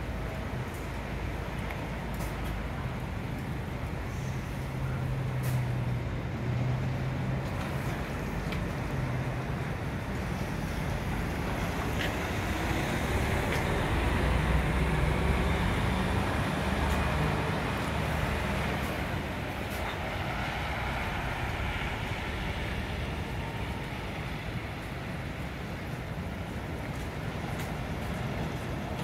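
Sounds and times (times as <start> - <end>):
bus diesel engine pulling away: 4.0 - 9.6, 10.2 - 25.8.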